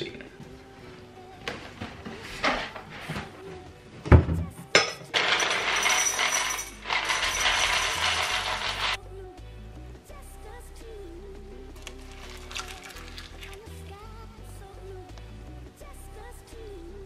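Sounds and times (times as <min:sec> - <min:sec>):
cereal pouring into ceramic bowl: 0:05.2 - 0:09.0, 0:11.8 - 0:13.9.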